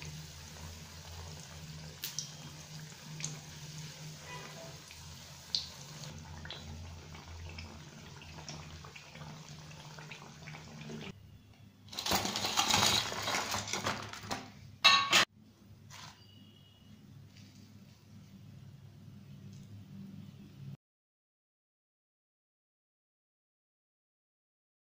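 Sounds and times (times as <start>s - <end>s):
food sizzling in hot oil: 0.0s - 11.1s
rustling and clatter on steel plate: 11.9s - 15.3s.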